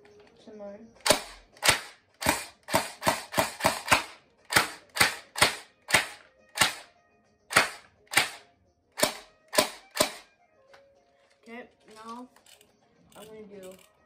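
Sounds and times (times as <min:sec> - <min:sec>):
airsoft rifle single shots: 0:01.0 - 0:06.9, 0:07.5 - 0:08.4, 0:09.0 - 0:10.3.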